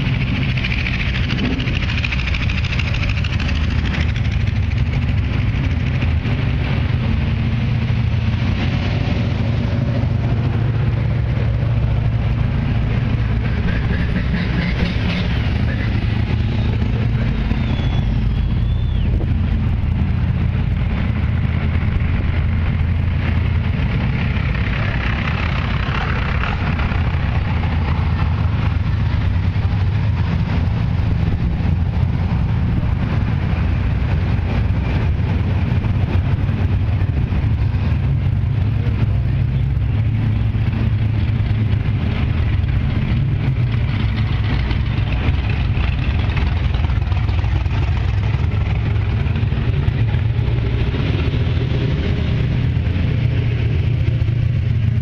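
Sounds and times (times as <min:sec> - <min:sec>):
cars driving slowly past: 0:00.0 - 0:55.0.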